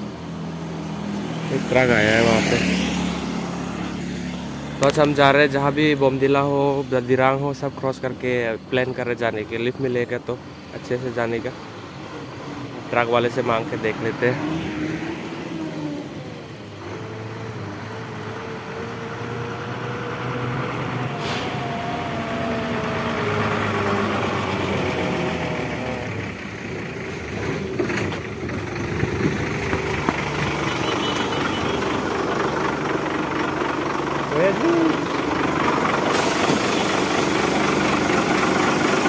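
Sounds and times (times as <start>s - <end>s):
truck engine droning: 0.0s - 39.0s.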